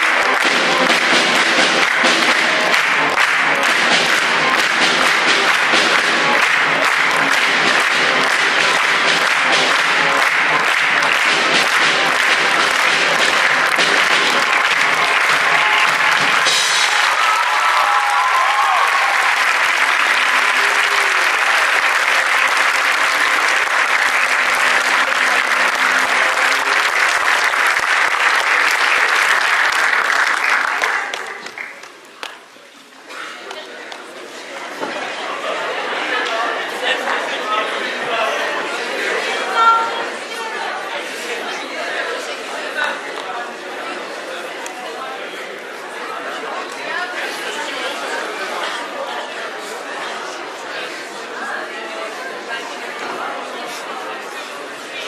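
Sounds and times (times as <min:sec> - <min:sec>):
music playing: 0:00.0 - 0:29.9
audience applauding: 0:00.0 - 0:32.7.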